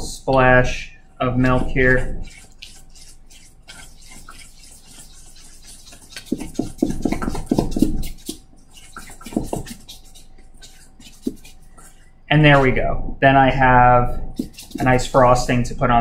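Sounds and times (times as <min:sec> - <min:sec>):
whisk beating icing in metal bowl: 0:01.4 - 0:12.0, 0:14.2 - 0:16.0.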